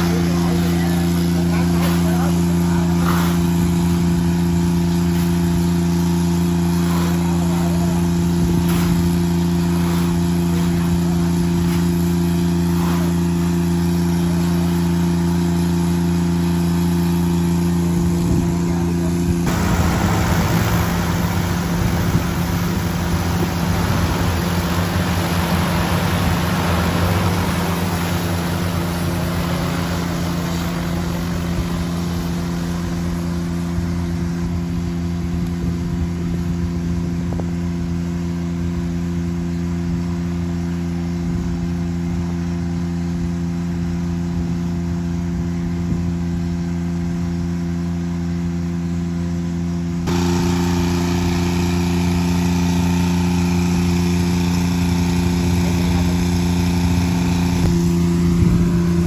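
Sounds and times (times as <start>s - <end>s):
rotor wash rushing: 0.0s - 34.6s, 50.0s - 59.0s
drone rotors humming: 0.0s - 47.6s, 49.8s - 59.0s.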